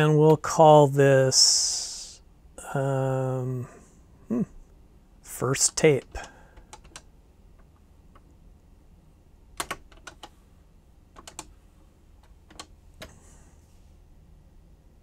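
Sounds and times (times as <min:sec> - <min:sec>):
keyboard keys clicking: 0:06.0 - 0:08.3, 0:09.6 - 0:10.3, 0:11.1 - 0:11.5, 0:12.2 - 0:13.2.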